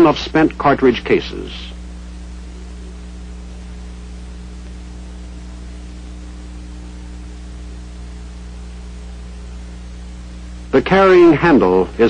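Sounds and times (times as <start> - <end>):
electrical mains hum: 0.0 - 12.0
film soundtrack hiss: 0.0 - 12.0.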